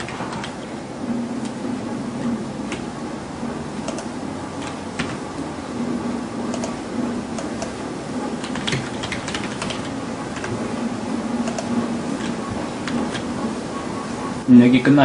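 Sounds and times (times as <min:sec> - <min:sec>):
keyboard typing: 0:00.0 - 0:00.8, 0:03.8 - 0:14.4
low hum: 0:00.0 - 0:14.9.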